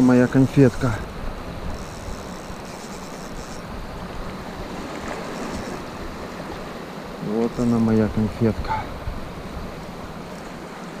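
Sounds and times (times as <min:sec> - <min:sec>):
sea waves washing: 0:00.0 - 0:11.0
seaside wind: 0:00.0 - 0:11.0.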